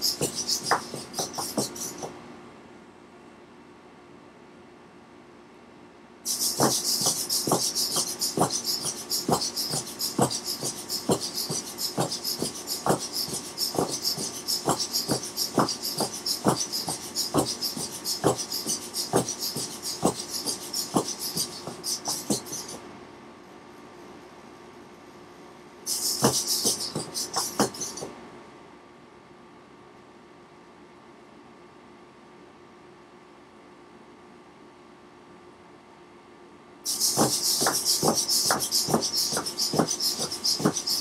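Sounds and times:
robot legs tapping wooden floor: 0.0 - 2.1, 6.6 - 22.8, 26.2 - 28.1, 37.1 - 41.0.

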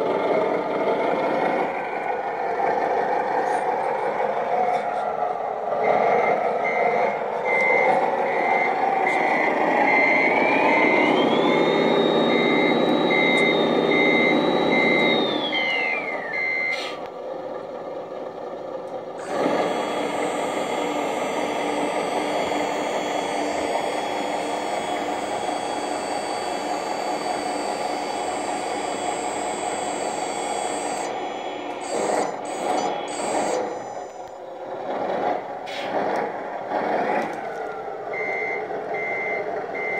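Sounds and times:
reversing beeps: 5.8 - 17.0, 19.2 - 34.4, 38.1 - 39.9
whine: 7.4 - 17.1, 19.0 - 34.7
steady machine hum: 7.5 - 16.6, 18.9 - 35.2
toy truck motor noise: 8.0 - 17.4, 18.8 - 37.7.

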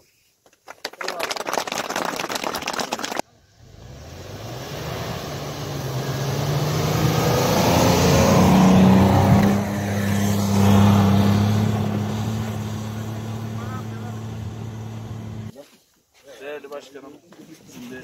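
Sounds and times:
suv engine revving: 3.4 - 15.5.

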